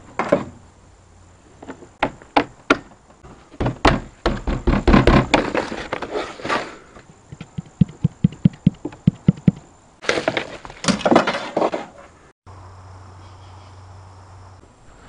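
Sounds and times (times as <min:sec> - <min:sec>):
hollow knocks on console: 0:03.6 - 0:05.5, 0:07.4 - 0:09.6.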